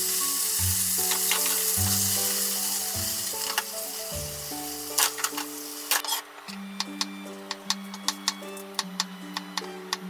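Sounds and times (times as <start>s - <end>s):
food sizzling in a frying pan: 0.0s - 6.2s.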